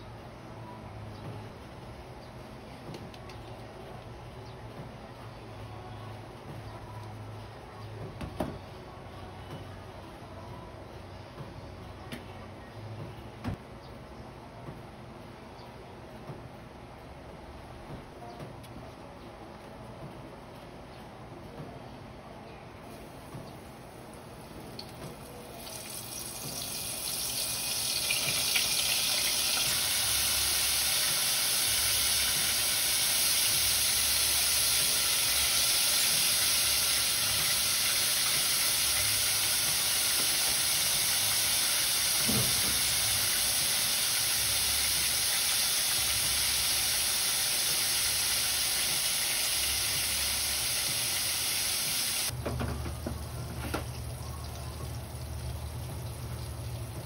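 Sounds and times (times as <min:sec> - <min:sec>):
deep-frying oil sizzling: 0:22.9 - 0:57.0.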